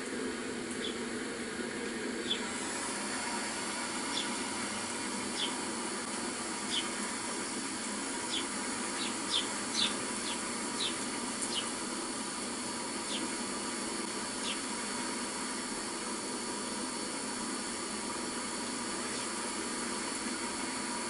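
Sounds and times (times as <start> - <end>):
steady hiss: 0.0 - 21.0
sparrows chirping: 0.8 - 1.0, 2.2 - 2.5, 4.0 - 5.6, 6.6 - 7.1, 7.7 - 11.8, 13.0 - 13.4, 14.4 - 14.7.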